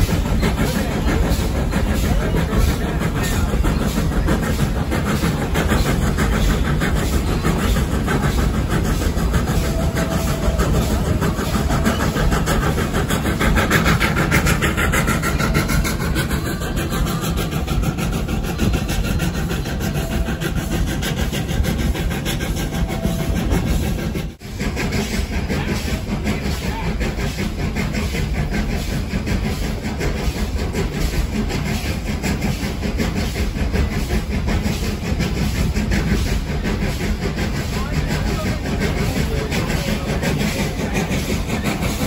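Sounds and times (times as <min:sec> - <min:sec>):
train wheels rumbling on rails: 0:00.0 - 0:42.0.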